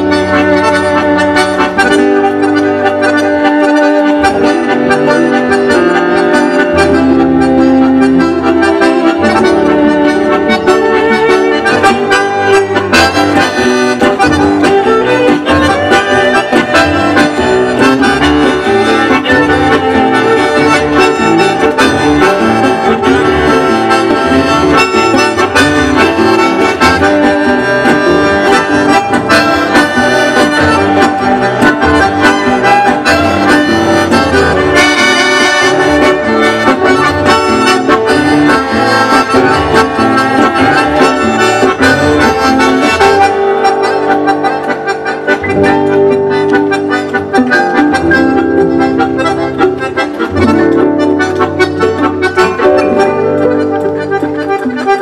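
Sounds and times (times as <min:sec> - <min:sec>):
accordion: 0:00.0 - 0:55.0
guitars: 0:00.0 - 0:55.0
violin: 0:00.0 - 0:55.0.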